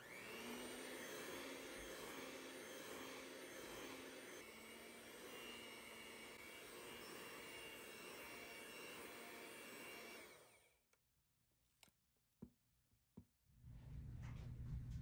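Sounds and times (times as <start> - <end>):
electric hand mixer running: 0.0 - 10.8.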